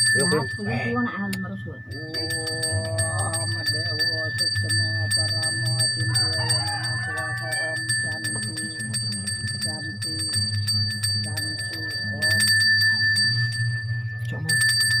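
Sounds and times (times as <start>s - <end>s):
voices chanting: 0.0s - 1.3s, 1.9s - 10.4s
hand bell ringing: 0.0s - 15.0s.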